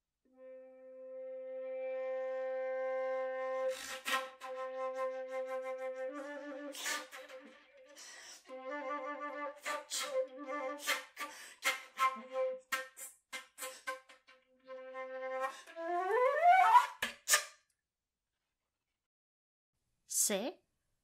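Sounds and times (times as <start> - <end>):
flute playing low notes: 0.3 - 14.0, 14.6 - 16.9
breathy whispered flute strokes: 3.6 - 4.5, 6.6 - 8.6, 9.6 - 12.2.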